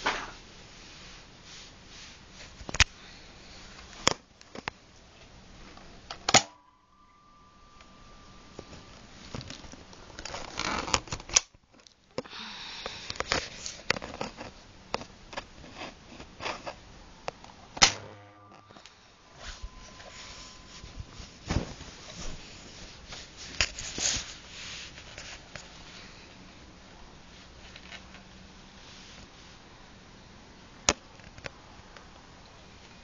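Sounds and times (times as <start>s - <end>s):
plastic rustling and rubbing: 8.7s - 12.0s, 13.2s - 16.9s, 19.2s - 26.2s.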